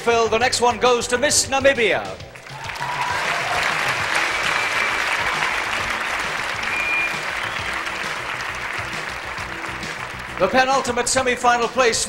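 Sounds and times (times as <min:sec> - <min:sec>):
audience applause: 0:02.4 - 0:11.3.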